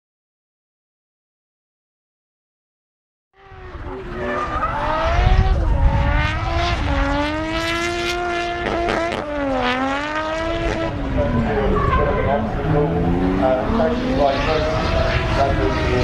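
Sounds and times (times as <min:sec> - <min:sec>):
car engine revving: 0:03.4 - 0:16.0.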